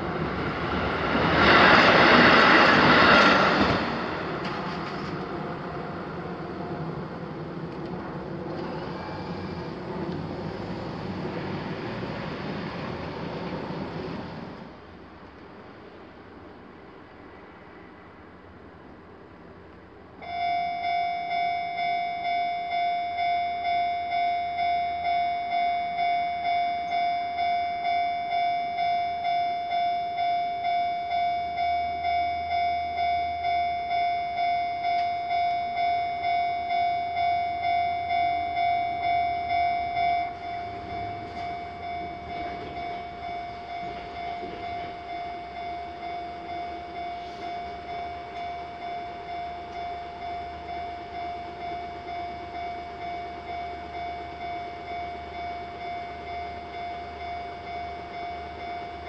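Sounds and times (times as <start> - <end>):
railroad crossing bell ringing: 0.0 - 4.3, 20.2 - 59.0.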